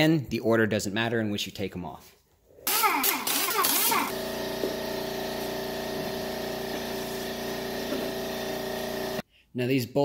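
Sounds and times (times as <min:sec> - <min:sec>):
air impact wrench: 0:02.7 - 0:09.2.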